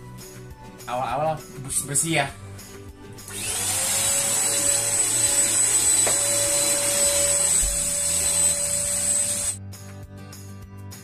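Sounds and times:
handheld vacuum cleaner running: 3.3s - 9.6s.

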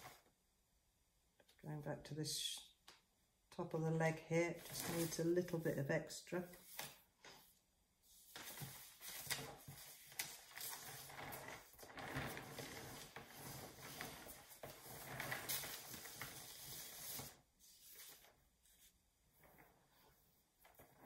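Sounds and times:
rustling and scraping: 4.6s - 5.6s, 6.6s - 21.0s.

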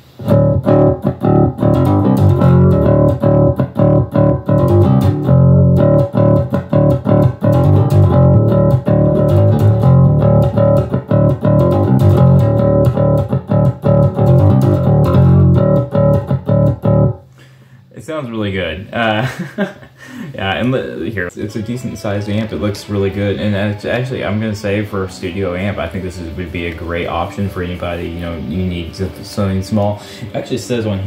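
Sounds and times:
overdriven electric bass riff: 0.0s - 17.3s.

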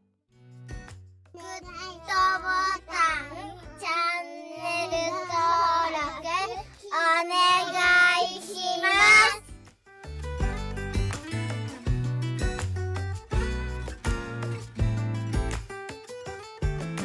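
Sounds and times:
backing music with low bass: 0.4s - 6.7s, 7.4s - 17.0s
child singing jingle: 1.4s - 9.5s.

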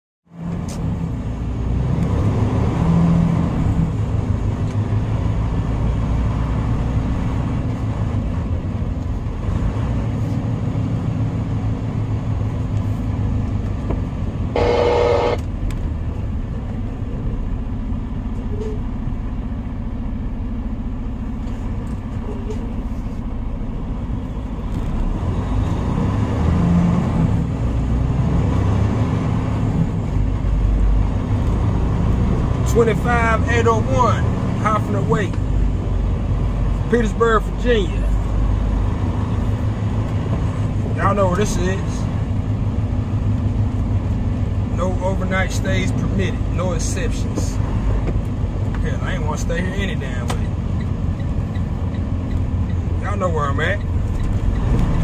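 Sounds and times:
diesel truck engine rumble: 0.3s - 55.0s
short tone: 14.6s - 15.4s.

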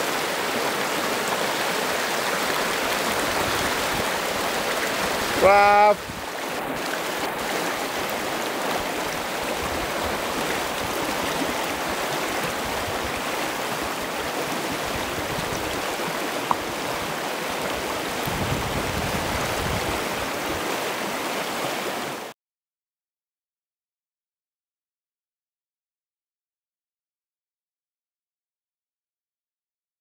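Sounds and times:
river rushing over rocks: 0.0s - 22.3s.

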